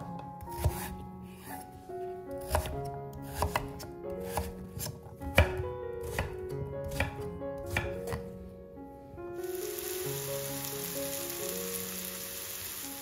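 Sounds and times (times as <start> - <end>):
knife chopping on wooden board: 0.4 - 1.6, 2.4 - 8.3.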